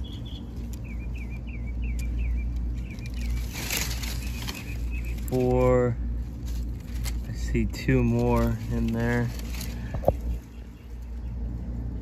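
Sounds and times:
bird chirping quickly: 0:00.0 - 0:05.4
low outdoor rumble: 0:00.0 - 0:12.0
hand scratching loose soil: 0:02.8 - 0:10.7.

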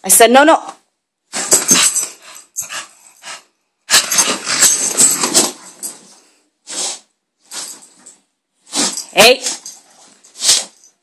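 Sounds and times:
bedding rustling: 0:01.3 - 0:11.0
dog making excited noises: 0:01.5 - 0:05.8.

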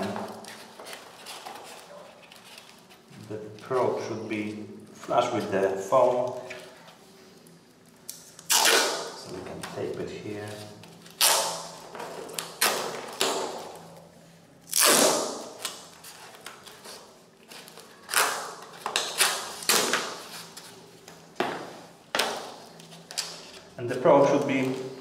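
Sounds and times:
duct tape ripping off roll: 0:08.1 - 0:09.2, 0:11.1 - 0:13.7, 0:14.7 - 0:16.6, 0:17.7 - 0:20.6.

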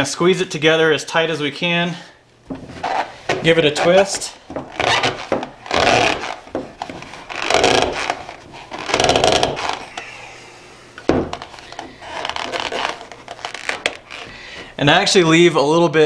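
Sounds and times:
paper and plastic creaking: 0:02.6 - 0:10.2, 0:11.3 - 0:14.4.

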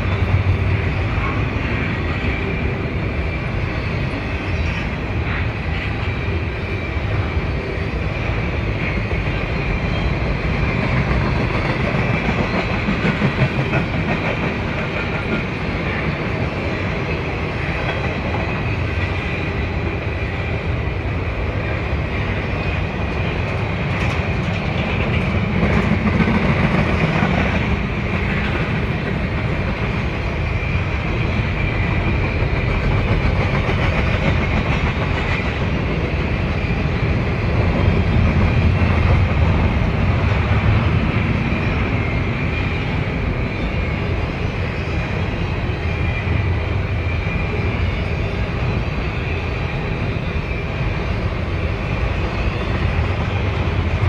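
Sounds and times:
freight train rumble: 0:00.0 - 0:54.0
wheels clacking over rail joints: 0:22.6 - 0:30.1.

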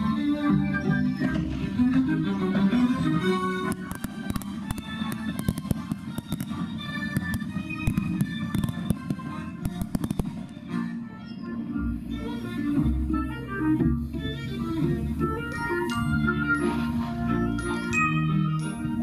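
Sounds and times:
music: 0:00.0 - 0:19.0
fireworks crackling and banging: 0:03.6 - 0:10.8.

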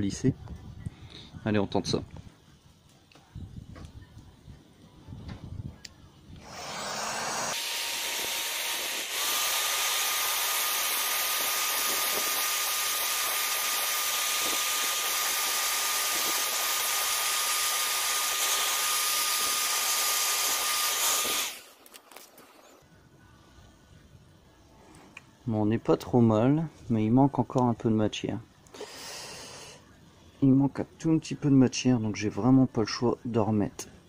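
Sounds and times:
heat gun fan hissing: 0:06.4 - 0:22.0.

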